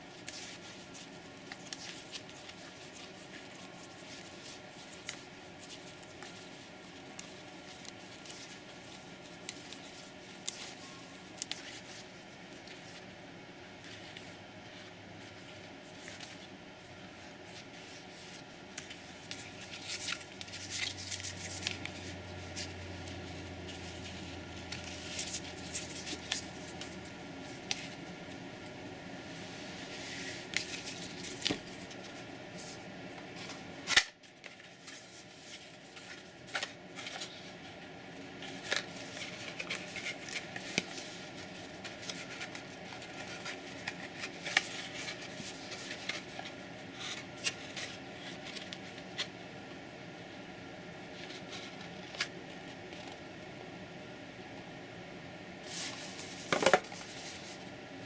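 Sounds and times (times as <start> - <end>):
cards sliding and flicking: 29.9 - 32.0, 33.4 - 37.3.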